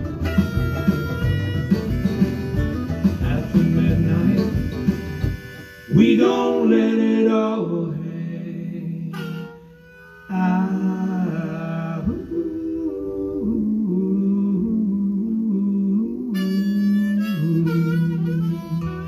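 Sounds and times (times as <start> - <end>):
electric guitar: 0.0 - 6.6
blues harmonica: 0.0 - 7.4, 8.2 - 14.3, 16.2 - 19.0.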